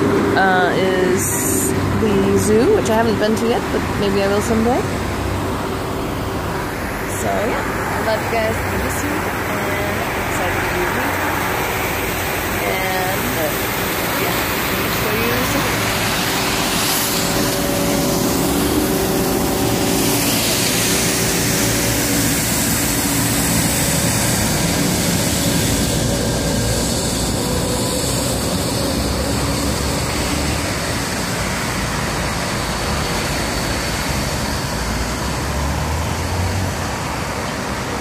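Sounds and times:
engine hum: 0:00.0 - 0:38.0
street traffic: 0:00.0 - 0:38.0.

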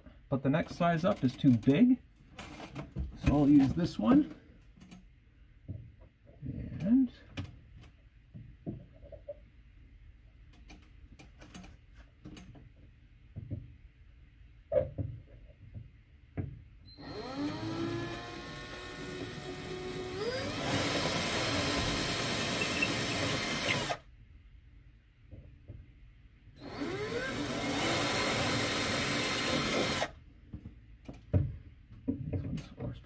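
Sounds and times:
power drill whining: 0:16.9 - 0:24.0, 0:26.6 - 0:30.2.

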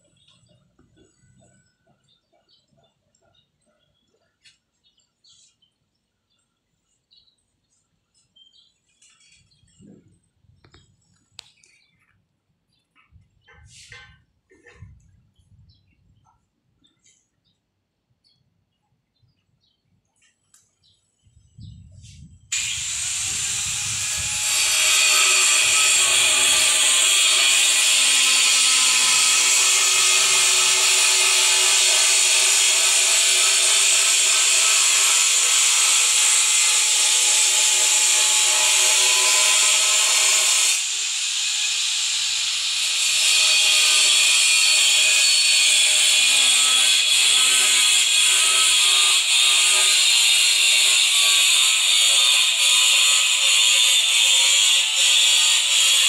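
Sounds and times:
power tool whining: 0:22.5 - 0:56.0.

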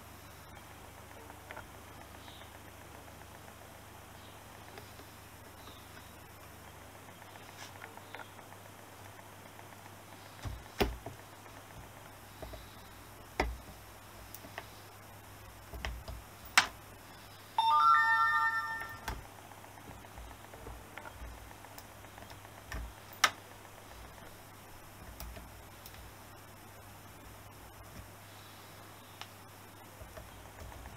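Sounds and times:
bell-like ringing chime: 0:17.6 - 0:19.1.

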